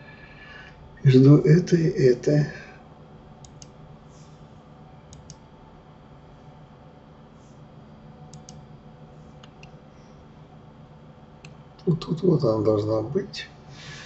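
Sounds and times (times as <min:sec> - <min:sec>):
low steady hum: 0:00.0 - 0:14.0
mouse and keyboard clicking: 0:03.4 - 0:03.7, 0:05.1 - 0:05.4, 0:08.3 - 0:08.6.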